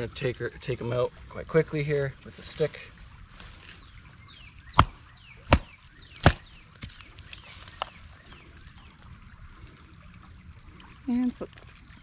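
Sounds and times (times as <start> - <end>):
wooden stick hitting fish: 4.7 - 7.1.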